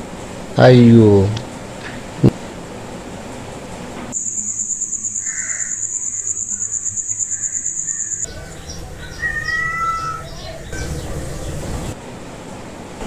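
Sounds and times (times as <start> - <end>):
cricket trilling: 4.1 - 11.9
birds calling: 4.2 - 12.0.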